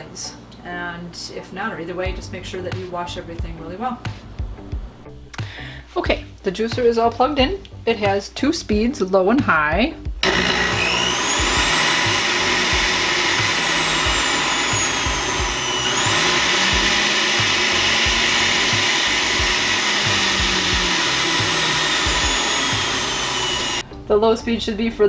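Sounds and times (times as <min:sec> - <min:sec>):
juicer motor whine: 0:10.2 - 0:23.8.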